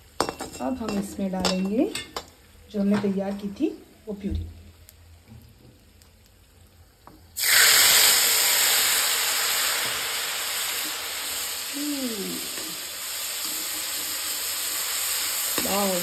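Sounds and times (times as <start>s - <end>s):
paste sizzling in hot oil: 4.7s - 16.0s.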